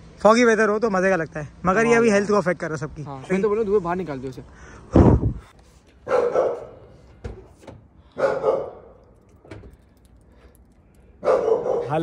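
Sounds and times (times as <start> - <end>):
dog barking: 6.0 - 6.8, 8.2 - 9.0, 11.2 - 12.0.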